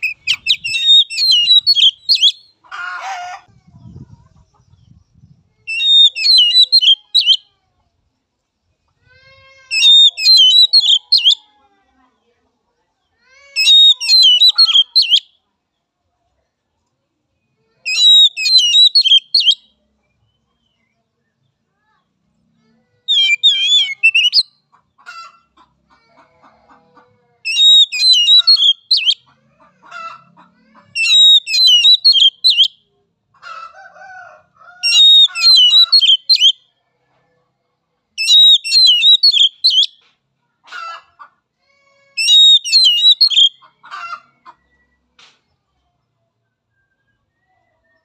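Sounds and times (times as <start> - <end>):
bird warbling song: 0.0 - 2.6, 3.8 - 7.4, 9.7 - 11.4, 13.6 - 15.2, 17.9 - 19.7, 23.1 - 24.6, 27.5 - 29.3, 31.0 - 32.8, 34.8 - 36.6, 38.2 - 40.0, 42.2 - 43.7
fainter lower bird calls: 0.0 - 2.7, 4.6 - 7.5, 9.7 - 11.4, 13.3 - 15.3, 17.6 - 20.9, 22.8 - 24.7, 27.5 - 29.3, 31.0 - 32.9, 34.8 - 36.6, 38.2 - 40.0, 42.2 - 43.7.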